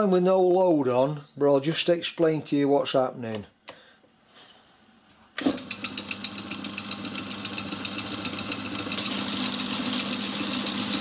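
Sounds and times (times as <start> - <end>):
lathe motor humming and ticking: 5.4 - 11.0.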